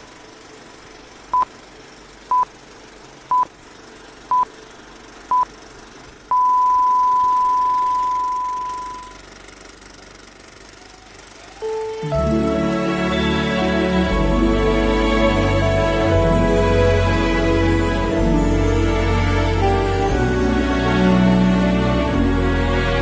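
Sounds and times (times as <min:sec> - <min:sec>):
long held beep: 0:06.3 - 0:09.2
short high beeps: 0:06.3 - 0:09.2.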